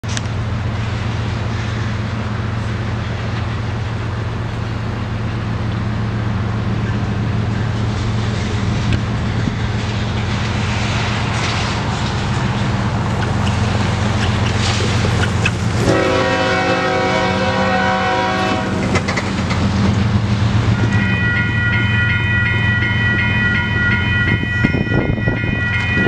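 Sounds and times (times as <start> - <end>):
pickup truck road noise: 7.5 - 20.8.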